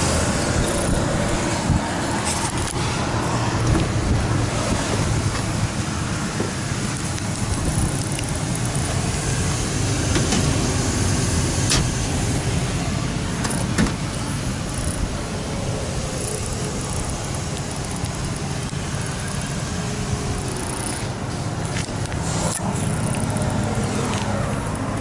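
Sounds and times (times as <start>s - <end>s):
steady rush of noise: 0.0s - 25.0s
door latch clicks: 11.7s - 12.0s.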